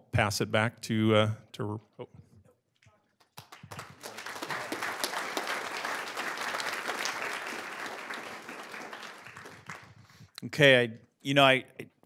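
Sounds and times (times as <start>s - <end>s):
audience applauding: 3.3s - 10.1s.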